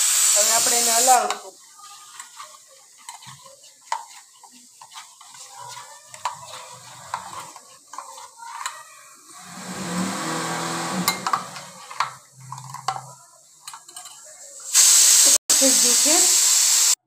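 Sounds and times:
loud steady hiss: 0.0 - 1.3, 9.3 - 12.0, 14.6 - 17.0
liquid swishing: 1.6 - 8.4, 9.3 - 12.1.

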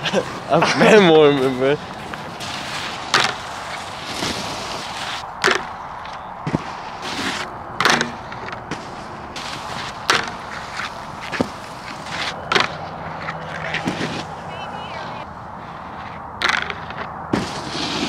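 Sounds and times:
snowboard clacking on rail: 0.0 - 14.3
snowboard scraping over snow: 0.0 - 18.0.

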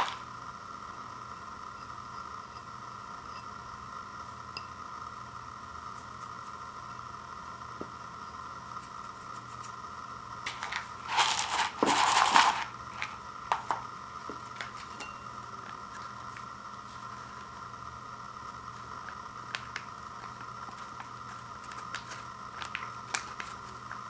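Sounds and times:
faint hum: 0.0 - 24.0
foil packet crinkles: 19.4 - 24.0
packaging crinkling: 19.5 - 24.0.

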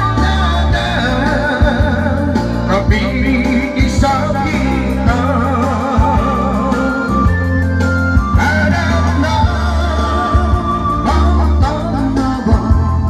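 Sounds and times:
person singing with vibrato: 0.0 - 13.0
pop backing track: 0.0 - 13.0.

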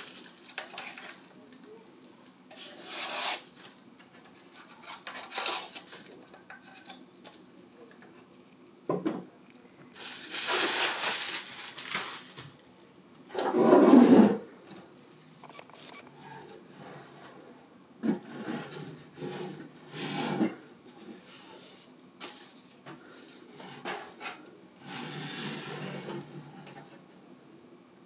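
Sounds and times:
wooden base scraping on table: 13.3 - 14.4, 18.0 - 20.6, 23.6 - 26.9.

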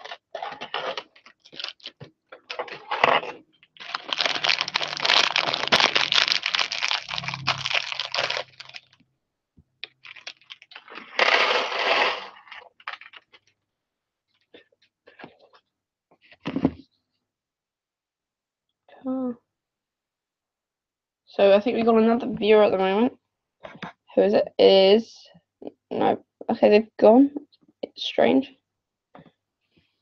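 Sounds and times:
plastic bag crinkling: 0.0 - 9.0, 9.8 - 13.5
plastic bricks clattering on table: 9.9 - 13.4.

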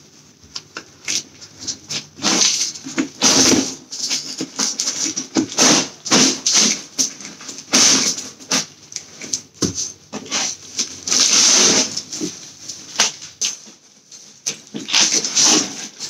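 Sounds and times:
plastic wrapping crinkling: 10.1 - 16.0.

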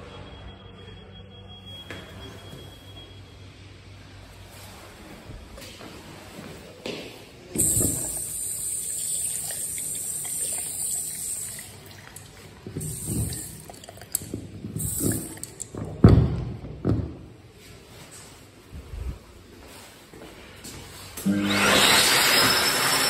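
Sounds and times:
tap water running into sink: 7.6 - 15.8.

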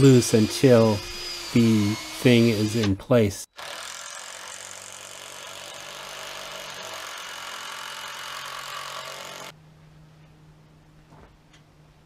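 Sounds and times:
power drill driving screw into wood: 3.6 - 9.5.

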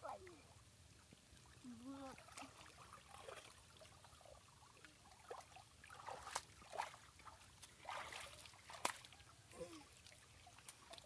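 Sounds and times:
water trickling and dripping: 0.0 - 11.0
brief water splashes: 5.2 - 11.0.

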